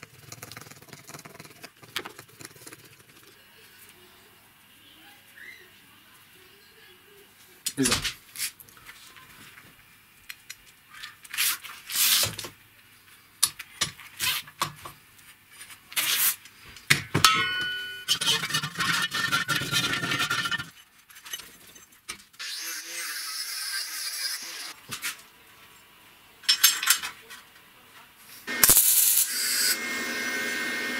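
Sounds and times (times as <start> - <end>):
ringing metallic clink: 17.2 - 18.1
metal rattling and scraping: 17.4 - 22.1
metal parts clicking and knocking: 26.4 - 27.4.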